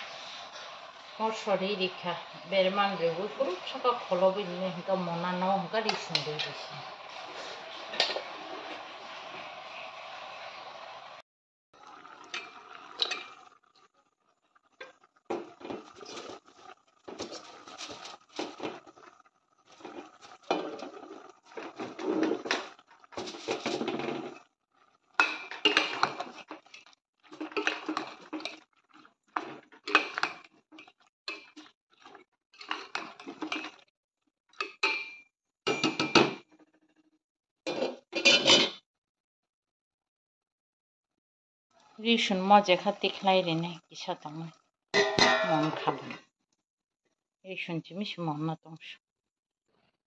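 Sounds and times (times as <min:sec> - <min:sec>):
metal spoon scraping a pot: 0:45.0 - 0:46.1.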